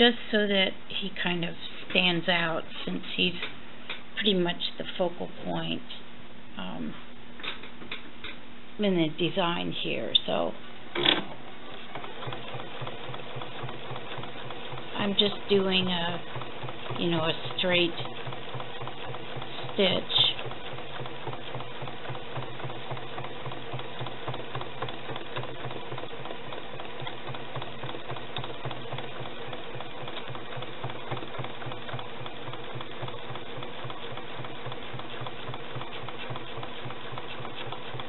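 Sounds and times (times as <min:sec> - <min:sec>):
sewing machine running: 0:11.0 - 0:38.0.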